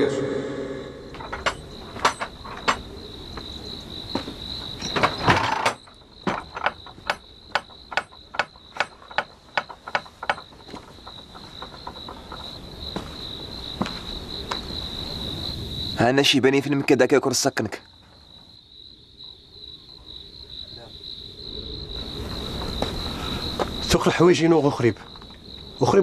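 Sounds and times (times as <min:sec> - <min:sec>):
insects trilling: 0:00.7 - 0:26.0
sharp knocks: 0:01.1 - 0:14.2
clatter: 0:01.2 - 0:02.9, 0:04.8 - 0:12.7.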